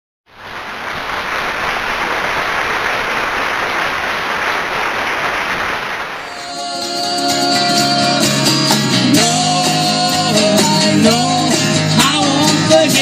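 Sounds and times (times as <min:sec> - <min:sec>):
audience applauding: 0:00.3 - 0:07.5.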